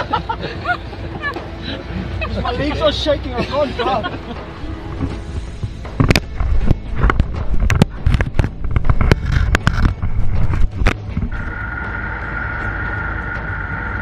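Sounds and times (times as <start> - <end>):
low rumble: 4.4 - 14.0
vehicle hum: 10.0 - 14.0
thin high whine: 11.3 - 14.0.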